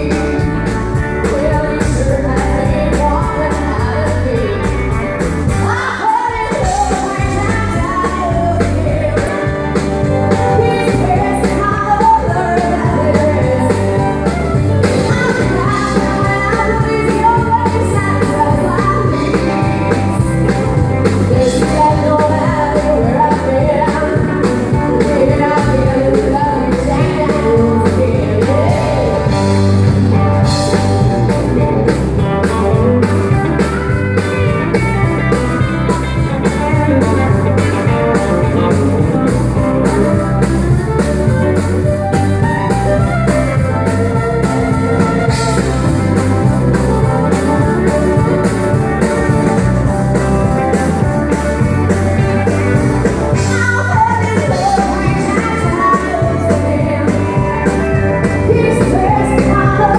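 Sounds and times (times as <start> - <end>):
woman singing: 0.0 - 29.7, 53.3 - 59.9
drum kit: 0.0 - 59.9
electric guitar: 0.0 - 59.9
pedal steel guitar: 0.0 - 59.9.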